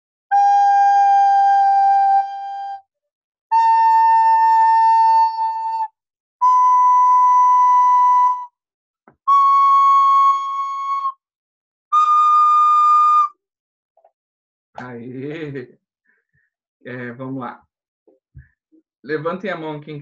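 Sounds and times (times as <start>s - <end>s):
flute notes: 0.3s - 2.8s, 3.5s - 11.2s, 11.9s - 13.4s.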